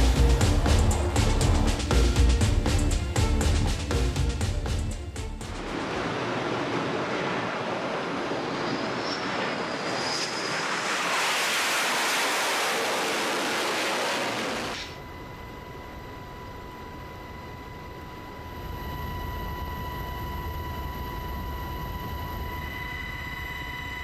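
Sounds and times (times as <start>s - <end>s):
jet and wind rushing: 0.0s - 15.0s
helicopter cabin drone: 0.0s - 24.0s
thin steady whine: 0.0s - 24.0s.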